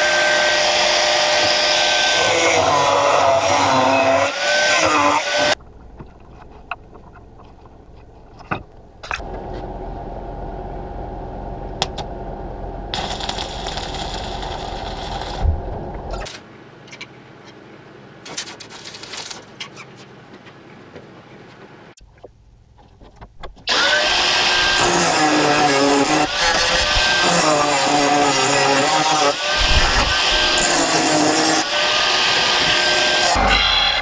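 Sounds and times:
angle grinder grinding metal: 0.0 - 5.6, 12.9 - 16.3, 23.7 - 34.0.

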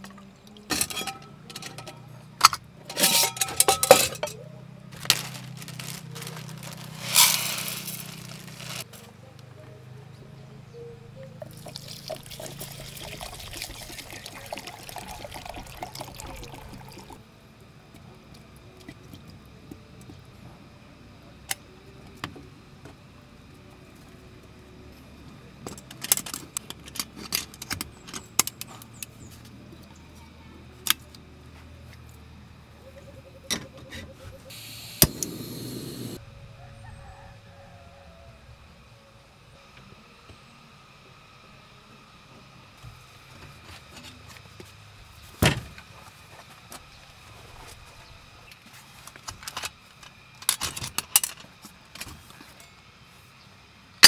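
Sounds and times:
metal pot clinks and knocks: 0.7 - 2.0, 2.9 - 4.4
water pouring: 11.5 - 17.2.

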